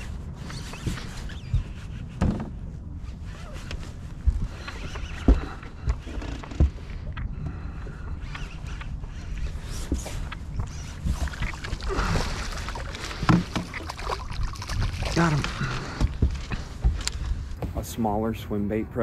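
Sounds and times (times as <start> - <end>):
low thumps and knocks: 0.9 - 2.8, 3.6 - 7.9, 13.0 - 18.1
water lapping against boat hull: 3.4 - 17.6.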